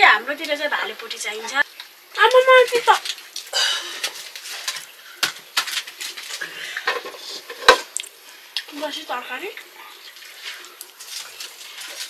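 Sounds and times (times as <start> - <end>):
pots and utensils clinking: 3.5 - 8.0.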